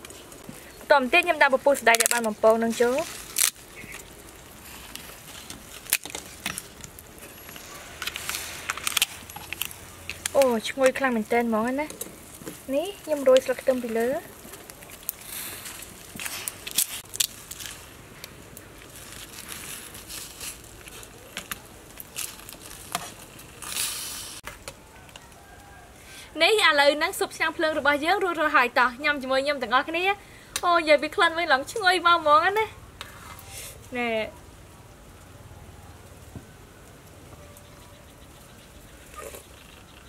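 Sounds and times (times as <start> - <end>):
sharp crackles and taps: 0.0 - 25.8, 30.5 - 30.8
loud hiss: 23.6 - 24.4.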